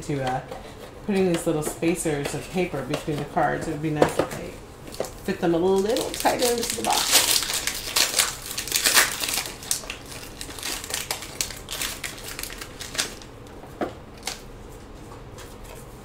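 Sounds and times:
paper packaging crinkling: 0:04.9 - 0:13.5, 0:14.1 - 0:14.5.

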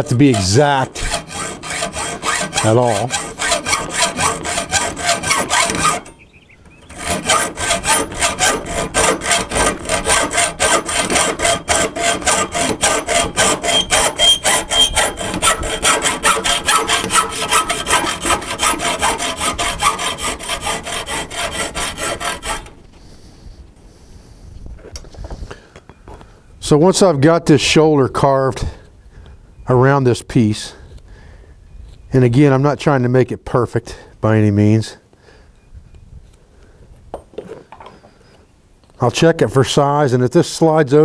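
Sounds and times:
hacksaw cutting copper pipe: 0:00.0 - 0:06.2, 0:06.8 - 0:22.8.

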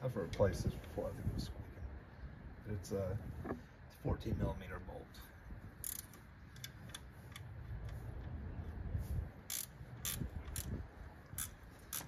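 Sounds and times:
hand ratchet clicking: 0:05.8 - 0:06.7, 0:09.5 - 0:12.0.

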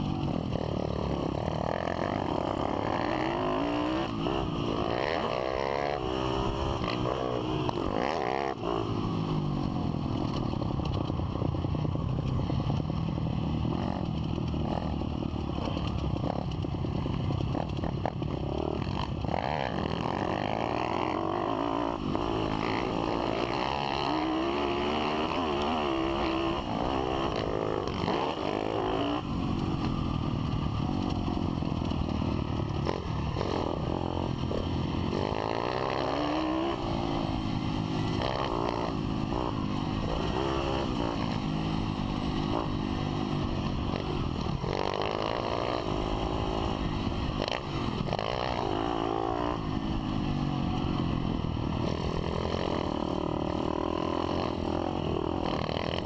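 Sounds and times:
motorbike engine revving: 0:00.0 - 0:56.0.

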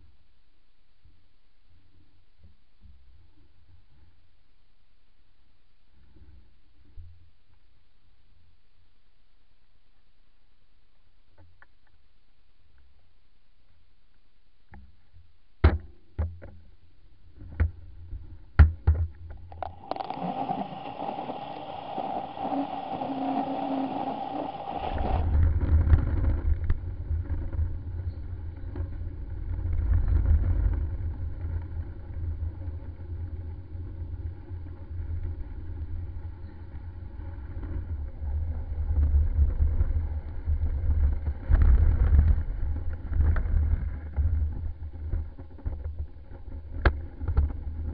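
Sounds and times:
hum with held tone: 0:19.3 - 0:26.4.

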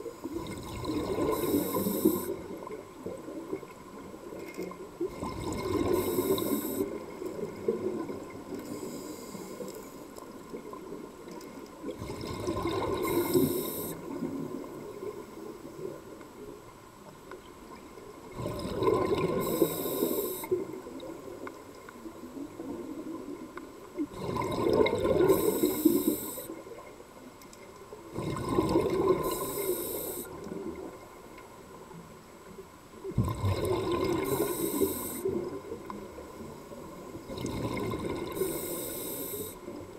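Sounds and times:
underwater water sound: 0:00.0 - 0:39.9
diver exhaling bubbles through regulator: 0:00.3 - 0:02.4, 0:05.1 - 0:07.0, 0:12.0 - 0:14.4, 0:18.4 - 0:20.5, 0:24.1 - 0:26.3, 0:28.2 - 0:30.3, 0:33.2 - 0:35.4, 0:37.3 - 0:39.5.

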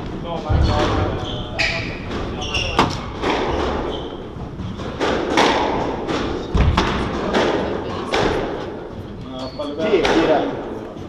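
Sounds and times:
squash ball thuds: 0:01.8 - 0:09.2.

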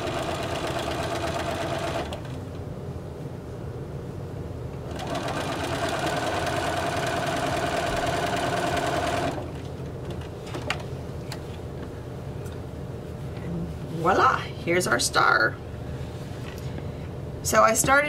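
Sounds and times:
sewing machine hum: 0:00.0 - 0:02.5, 0:04.9 - 0:09.7.

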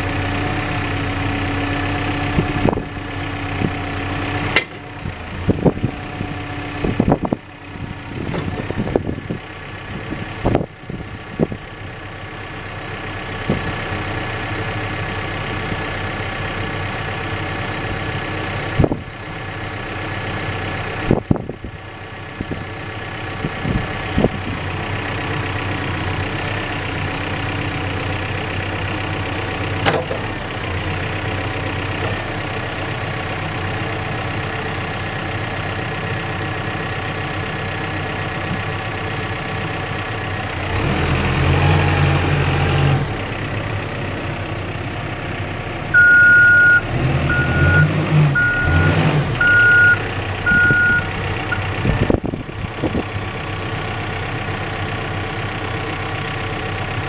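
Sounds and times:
diesel engine idling: 0:00.0 - 0:57.0
back-up alarm beeping: 0:46.0 - 0:51.1.

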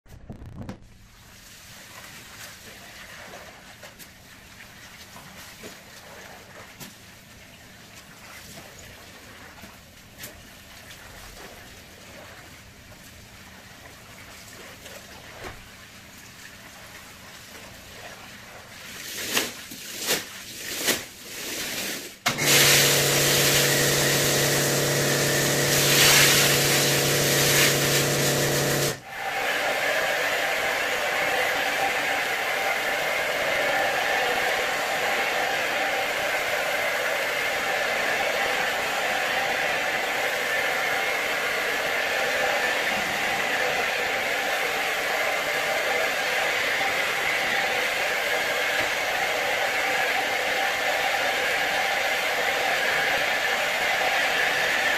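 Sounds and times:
hissing spray bursts: 0:22.3 - 0:29.0
cleaning machine motor hissing: 0:22.3 - 0:54.9.

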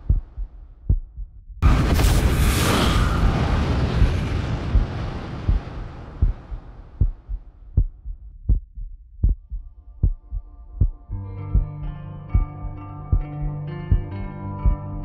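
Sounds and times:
slow low thumps: 0:00.0 - 0:02.1, 0:03.1 - 0:15.0
loud rushing noise: 0:01.6 - 0:07.1.

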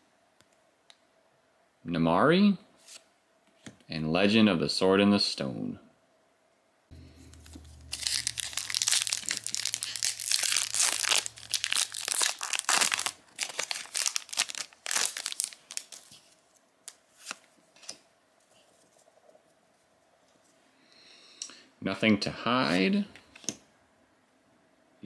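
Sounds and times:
wrapper tearing and crinkling: 0:07.2 - 0:18.0.

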